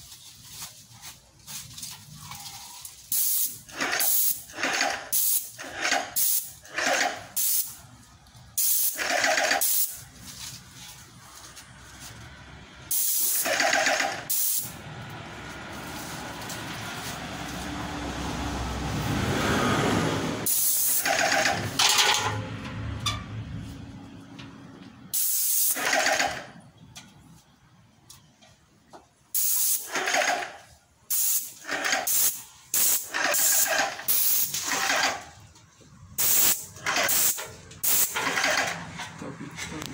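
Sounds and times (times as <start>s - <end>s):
paint spray gun hissing: 3.1s - 4.4s, 5.1s - 5.5s, 6.2s - 6.6s, 7.4s - 7.8s, 8.6s - 9.0s, 9.6s - 10.0s, 12.9s - 14.7s, 20.5s - 21.4s, 25.2s - 25.8s, 29.4s - 29.9s, 31.1s - 34.6s, 36.2s - 38.2s.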